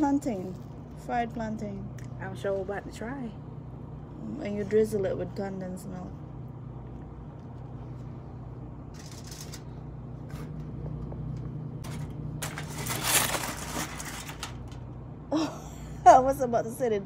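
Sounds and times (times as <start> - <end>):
steady low hum: 0.0 - 17.0
rustling and scraping handling noises: 8.9 - 14.8.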